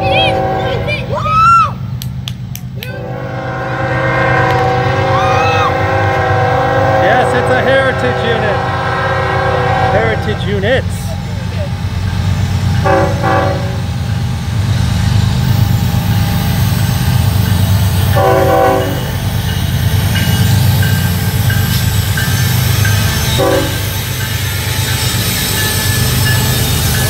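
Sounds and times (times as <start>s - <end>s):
train air horn blasts: 0.0s - 1.0s, 2.9s - 10.6s, 12.8s - 13.9s, 18.1s - 19.2s, 23.4s - 24.0s
diesel locomotive engine rumble: 0.0s - 27.0s.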